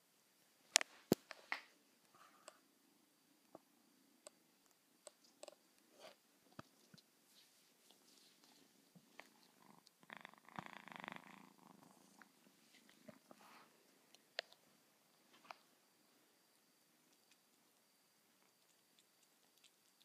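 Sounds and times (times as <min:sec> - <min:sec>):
kitten purring: 0:07.8 - 0:14.6, 0:17.0 - 0:20.0.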